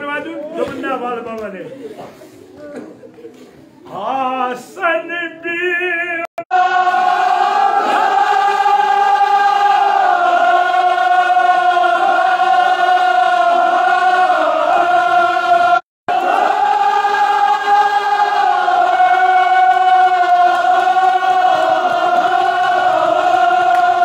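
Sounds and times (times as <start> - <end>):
group singing in unison: 6.5 - 24.0.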